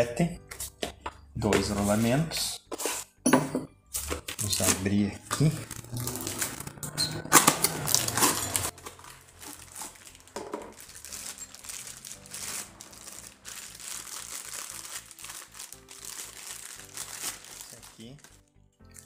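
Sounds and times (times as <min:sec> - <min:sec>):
plastic bag crinkling: 0:04.1 - 0:18.4.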